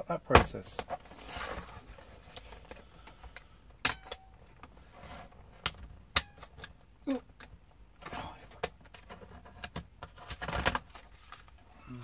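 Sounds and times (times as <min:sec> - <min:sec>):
plastic case sliding rustle: 0:00.8 - 0:02.8, 0:04.6 - 0:05.8.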